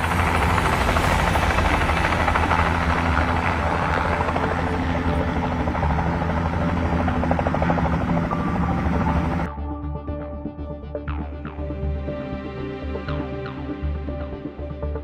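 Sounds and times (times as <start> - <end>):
helicopter engine drone: 0.0 - 9.5
helicopter rotor beating: 0.0 - 9.5.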